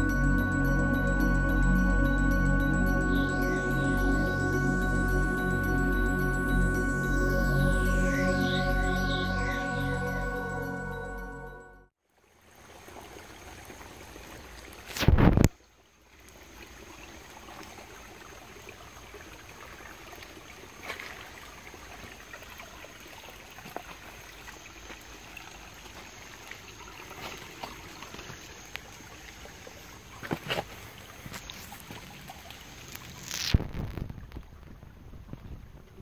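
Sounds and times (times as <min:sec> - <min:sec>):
water dripping and trickling: 0:12.1 - 0:36.0.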